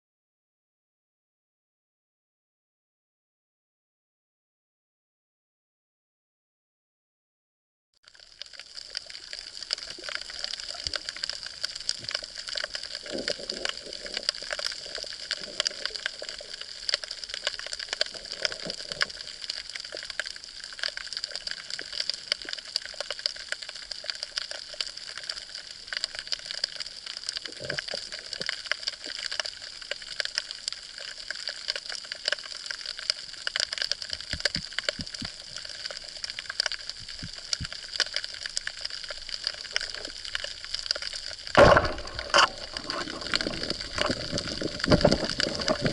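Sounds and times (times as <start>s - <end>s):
underwater hiss with crackling clicks: 8.0s - 45.9s
underwater swishes: 8.0s - 45.9s
low underwater thumps: 41.6s - 45.9s.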